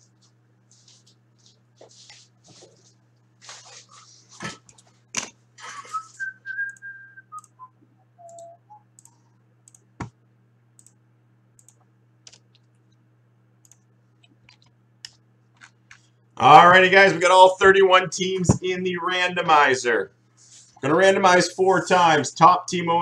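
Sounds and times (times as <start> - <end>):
man whistling: 5.8 - 8.9.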